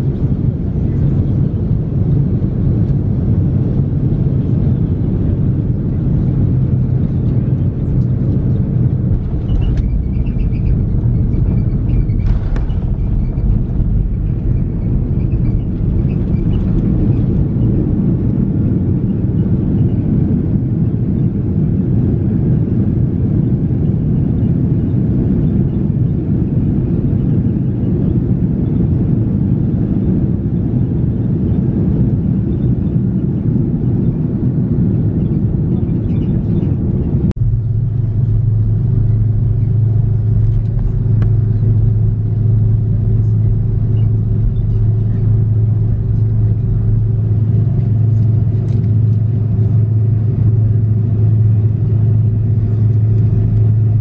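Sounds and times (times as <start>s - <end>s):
airliner cabin low rumble: 0.0s - 54.0s.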